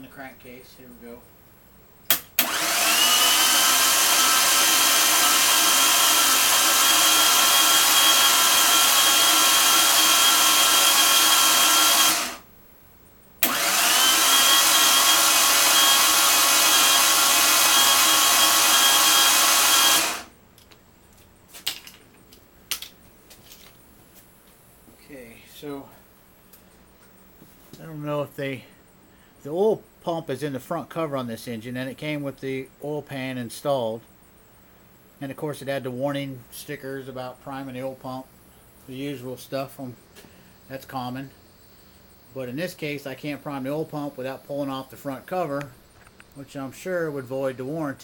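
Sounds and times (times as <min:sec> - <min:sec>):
starter motor cranking: 0:02.1 - 0:12.4, 0:13.4 - 0:20.3.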